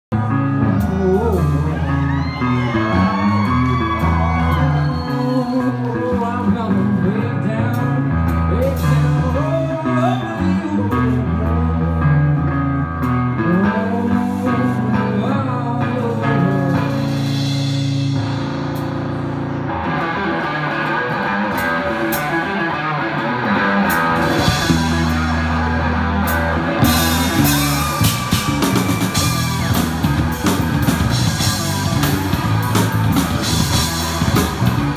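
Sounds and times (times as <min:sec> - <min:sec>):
person singing: 0:00.1 - 0:12.6, 0:13.3 - 0:17.4
electric guitars: 0:00.1 - 0:34.9
drum kit: 0:00.2 - 0:05.6, 0:15.9 - 0:34.9.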